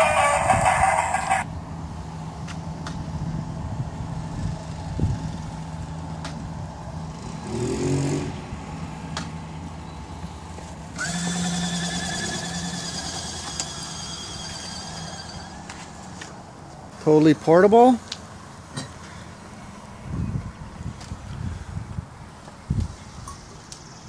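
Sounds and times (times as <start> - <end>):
electric motors humming: 10.9 - 16.0
high-pitched whine: 11.0 - 16.3.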